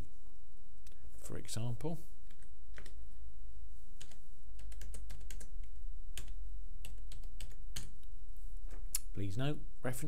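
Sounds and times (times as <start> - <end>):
keyboard typing: 2.2 - 3.0, 4.0 - 8.1.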